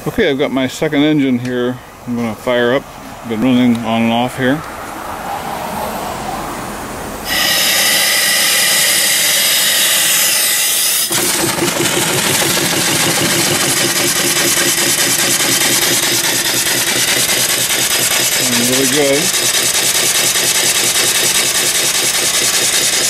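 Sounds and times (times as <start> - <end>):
steam engine exhaust beats: 7.2 - 23.0
steam hissing: 7.2 - 23.0.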